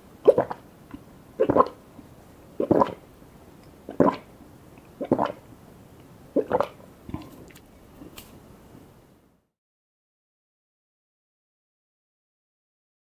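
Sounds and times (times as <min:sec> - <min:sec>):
person gulping a drink: 0:00.2 - 0:01.8, 0:02.6 - 0:03.0, 0:03.7 - 0:05.5, 0:06.3 - 0:08.2.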